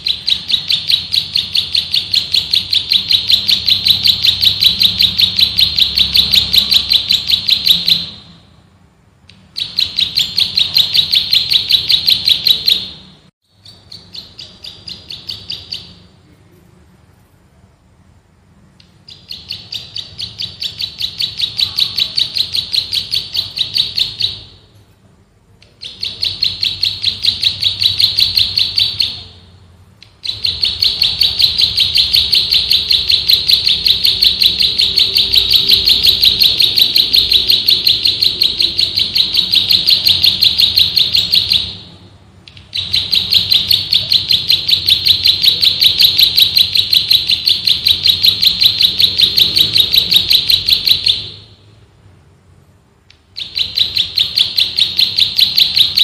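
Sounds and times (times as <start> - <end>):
bird singing rapid high trill: 9.5 - 16.1, 18.8 - 24.6.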